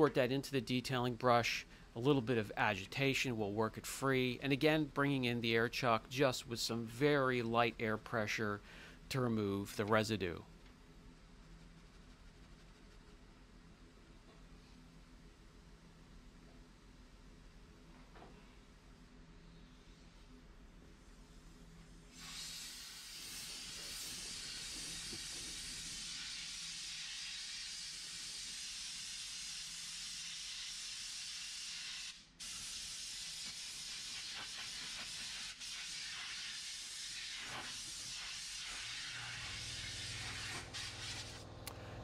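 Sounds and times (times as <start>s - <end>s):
compressed air hissing: 22.1s - 41.4s.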